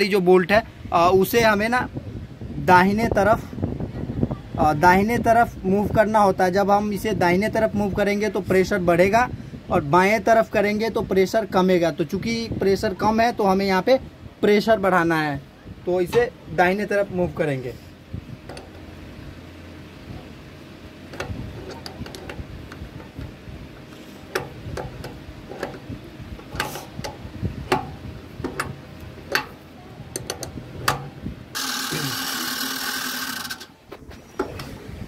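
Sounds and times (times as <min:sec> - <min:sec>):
low steady hum: 0:00.0 - 0:35.0
spanner clicking and tapping metal: 0:21.1 - 0:23.2, 0:24.3 - 0:25.8, 0:26.4 - 0:33.7.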